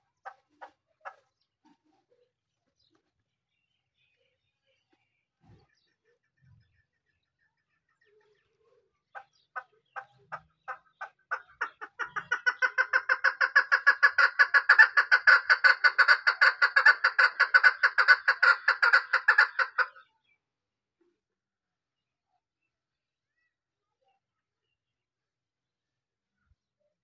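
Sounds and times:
partridge calling: 0:00.0 - 0:01.5, 0:09.1 - 0:20.4.

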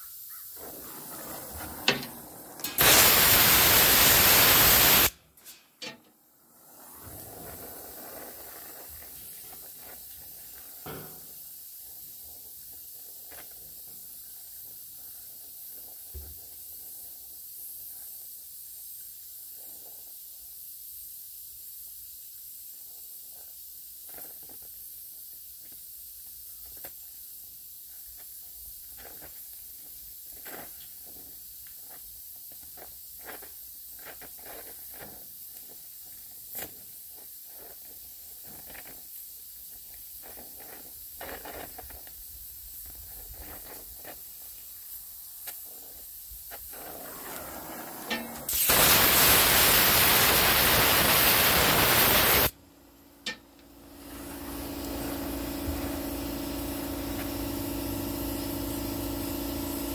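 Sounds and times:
welding torch flame hissing: 0:00.0 - 0:05.5, 0:06.4 - 0:52.6, 0:53.9 - 0:59.9
sharp pops: 0:01.8 - 0:05.2, 0:48.1 - 0:52.5.

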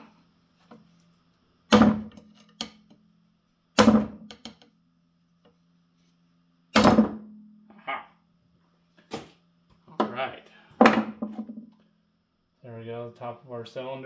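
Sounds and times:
smaller metal knocks: 0:03.8 - 0:04.7.

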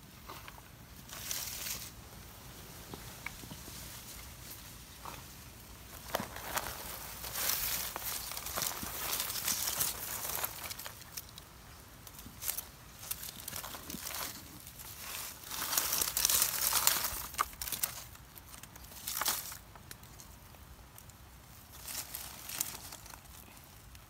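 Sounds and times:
leafy branches rustling on plastic tarp: 0:00.0 - 0:20.6, 0:21.5 - 0:23.9.

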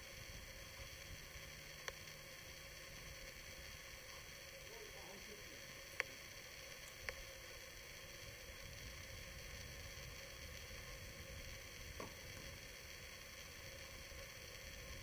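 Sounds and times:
steady faint hiss: 0:00.0 - 0:15.0.

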